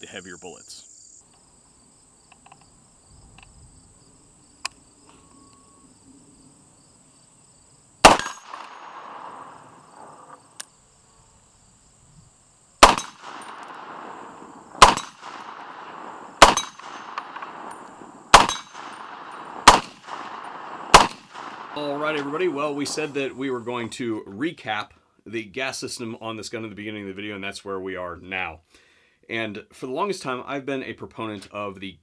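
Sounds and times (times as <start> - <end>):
faint insect buzz: 0.0 - 8.0, 9.0 - 12.8
gunshots: 8.0 - 10.3, 12.8 - 23.0.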